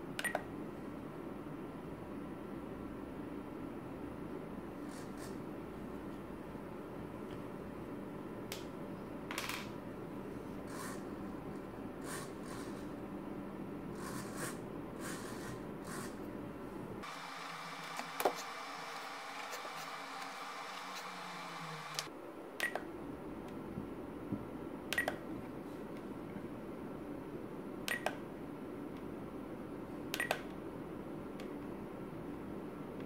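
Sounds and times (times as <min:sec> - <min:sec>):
steady background hiss: 0:16.5 - 0:24.9.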